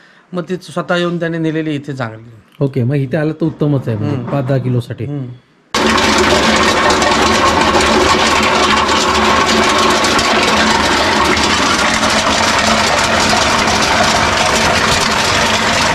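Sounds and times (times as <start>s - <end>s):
dehusking machine running: 5.8s - 15.9s.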